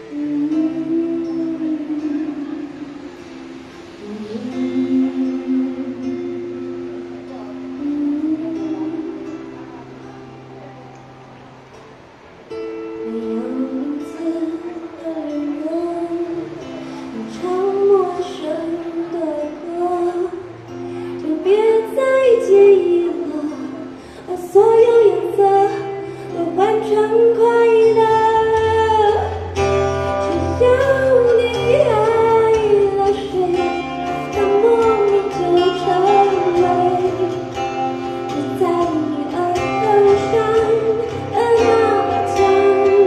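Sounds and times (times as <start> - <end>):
woman singing into microphone: 0.0 - 11.2, 12.9 - 43.0
acoustic guitar: 0.0 - 43.0.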